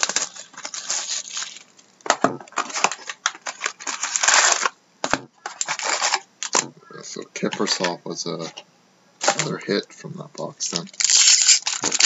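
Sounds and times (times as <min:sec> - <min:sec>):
cardboard tearing: 0:00.0 - 0:01.7, 0:02.5 - 0:04.7, 0:11.0 - 0:12.0.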